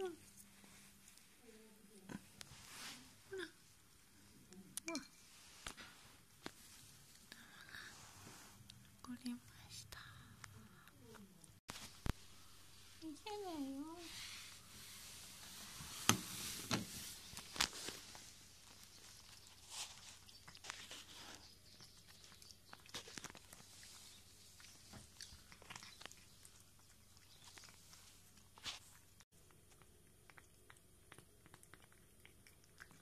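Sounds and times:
cat eating clicks and crunches: 0:20.2 - 0:33.0.

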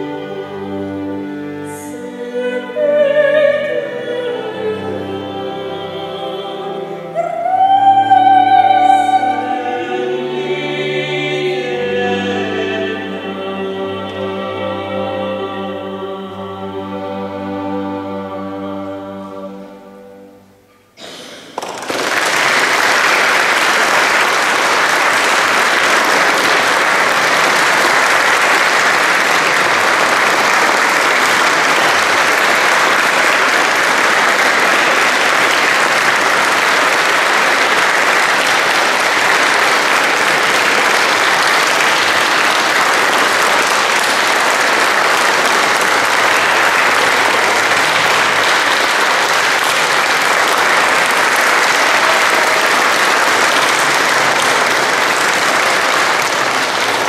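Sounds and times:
audience applause: 0:21.4 - 0:57.0.

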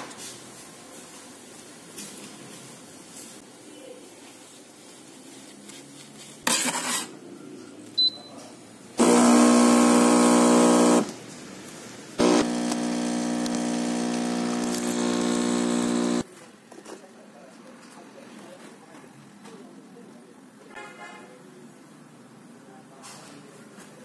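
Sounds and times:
espresso machine pump humming: 0:09.0 - 0:11.2, 0:12.2 - 0:16.2.

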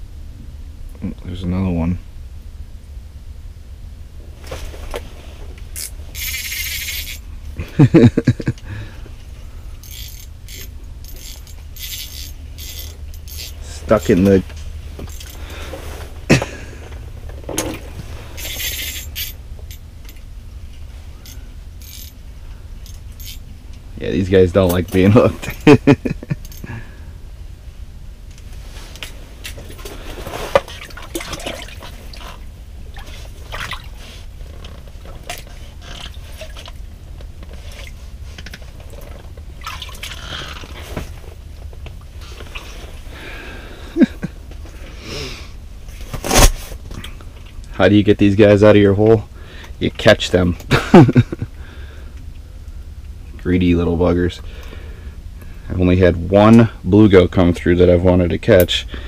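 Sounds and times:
steady low rumble: 0:00.0 - 0:59.0
water splashing and dripping: 0:30.6 - 0:34.0, 0:39.6 - 0:40.7.

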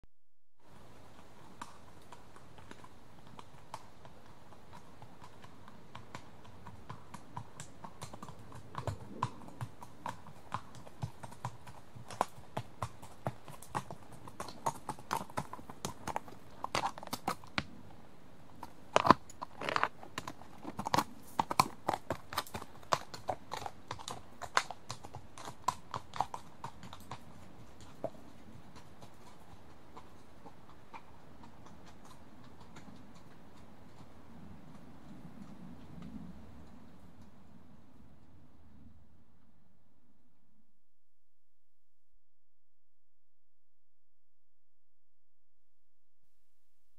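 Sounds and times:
horse hooves walking: 0:00.6 - 0:37.5.

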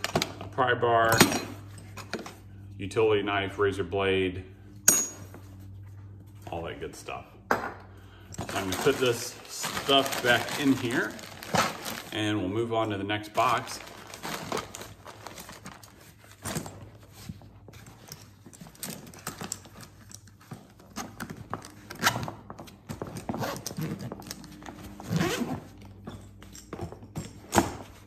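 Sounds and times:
zipper being pulled shut: 0:23.2 - 0:25.8
hand tools clinking and knocking: 0:26.0 - 0:28.0.

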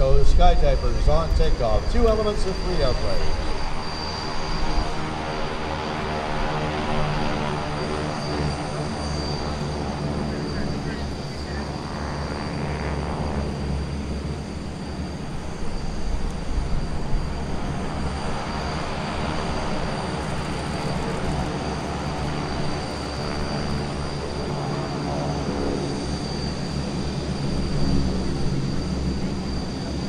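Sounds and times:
propeller aircraft engines droning: 0:00.0 - 0:30.0
steady high whine: 0:00.0 - 0:30.0.

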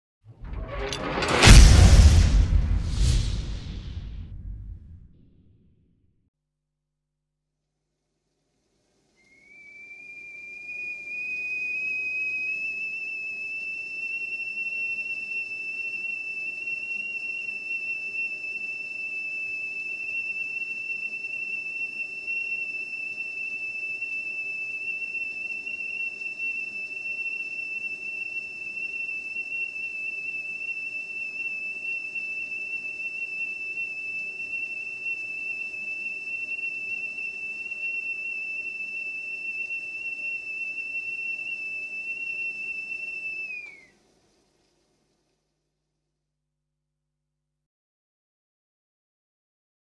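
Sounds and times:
whistling kettle: 0:09.1 - 0:44.6.

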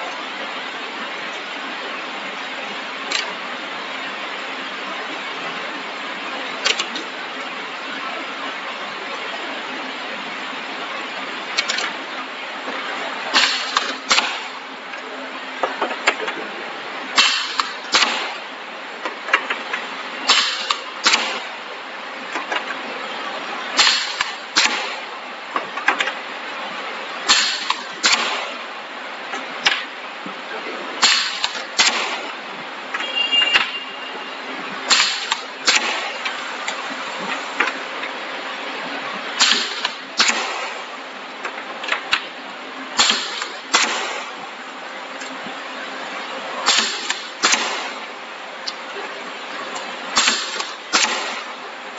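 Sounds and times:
steady background hiss: 0:00.0 - 0:51.9
pneumatic press bursts: 0:06.6 - 0:07.1, 0:13.3 - 0:14.6, 0:17.2 - 0:18.4, 0:20.2 - 0:21.5, 0:23.8 - 0:25.1, 0:27.3 - 0:28.6, 0:31.0 - 0:32.3, 0:32.9 - 0:37.9, 0:39.4 - 0:42.2, 0:43.0 - 0:44.4, 0:46.6 - 0:48.1, 0:49.6 - 0:51.6.

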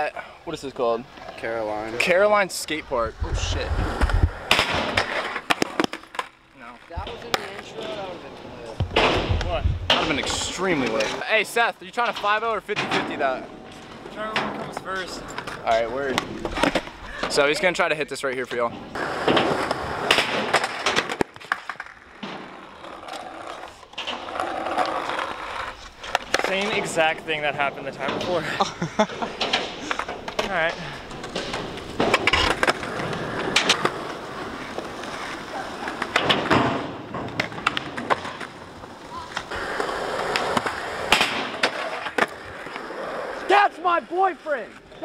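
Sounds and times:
skateboard wheels rolling on concrete: 0:00.0 - 0:45.0
skateboard hitting ledge and ground: 0:03.4 - 0:08.0, 0:08.7 - 0:11.2, 0:18.9 - 0:27.1, 0:29.2 - 0:43.6
skateboard clacks: 0:03.9 - 0:08.0, 0:19.0 - 0:27.1, 0:29.3 - 0:43.6.

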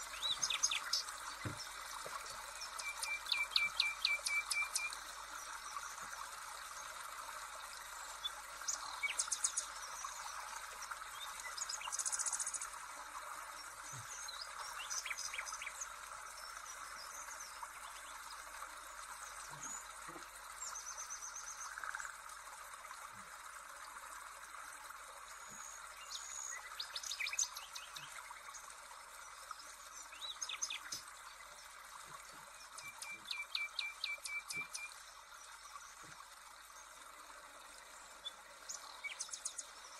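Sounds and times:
birds chirping and trilling: 0:00.0 - 0:01.8, 0:02.5 - 0:05.0, 0:32.6 - 0:34.9.

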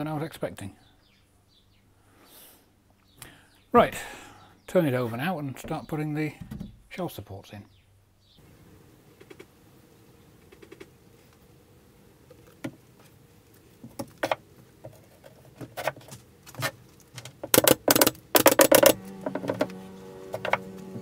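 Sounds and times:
wooden pieces knocking: 0:13.8 - 0:20.7
pin nailer firing: 0:17.5 - 0:19.7.

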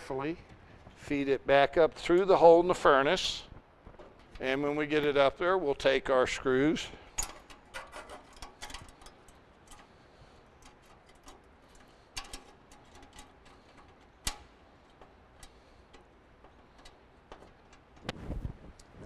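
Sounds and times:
metal parts clicking and tapping: 0:07.1 - 0:18.1.

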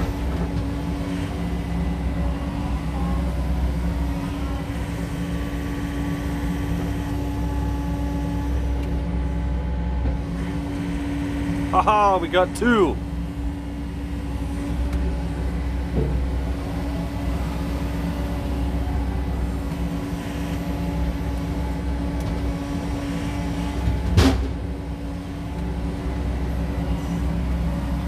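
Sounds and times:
excavator diesel engine running: 0:00.0 - 0:28.0.

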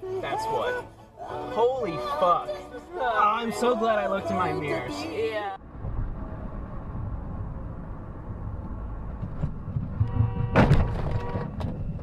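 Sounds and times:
road rumble inside a car: 0:04.9 - 0:12.0
vehicle impact bang: 0:05.6 - 0:12.0
car horn: 0:09.9 - 0:12.0.

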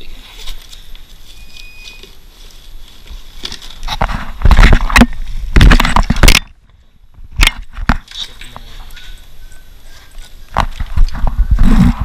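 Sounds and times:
microphone handling crackle: 0:00.0 - 0:09.1, 0:10.1 - 0:12.0.

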